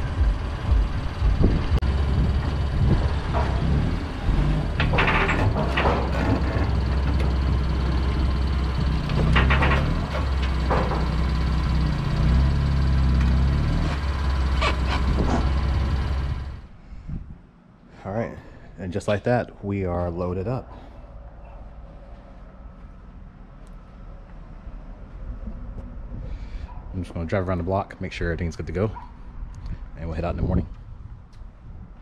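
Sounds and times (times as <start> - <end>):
car engine running: 0.0 - 16.7
knocks and creaks: 0.0 - 16.7, 21.4 - 27.8.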